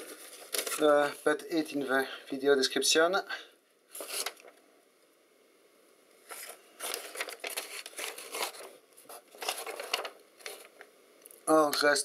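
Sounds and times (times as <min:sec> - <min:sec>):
paper rustling and crinkling: 0:00.0 - 0:01.2, 0:03.9 - 0:04.6, 0:06.2 - 0:10.9.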